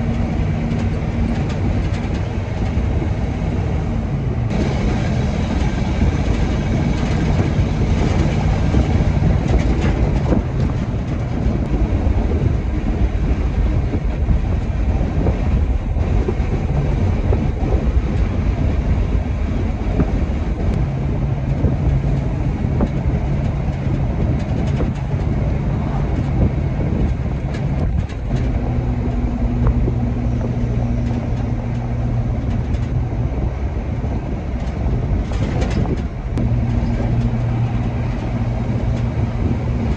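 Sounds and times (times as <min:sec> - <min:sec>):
road noise: 0:00.0 - 0:39.9
truck engine running: 0:00.0 - 0:39.9.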